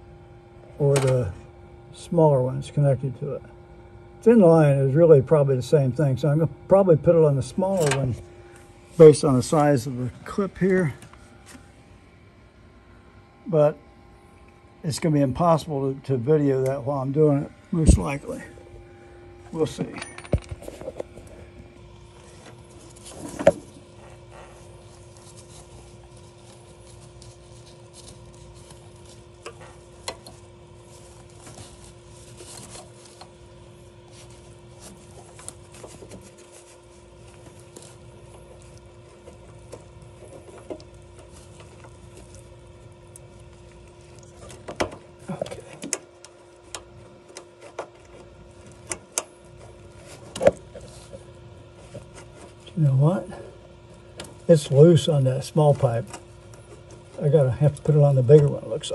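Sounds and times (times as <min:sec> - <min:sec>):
steady low hum: 0:00.0 - 0:58.9
gloved hands clicking and rustling: 0:22.2 - 0:52.6.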